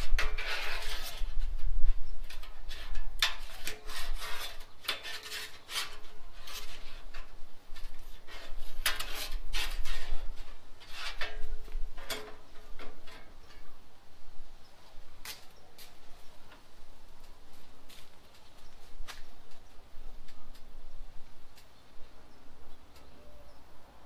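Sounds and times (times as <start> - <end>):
metal spatula scraping griddle: 0.0 - 1.7, 2.3 - 13.6.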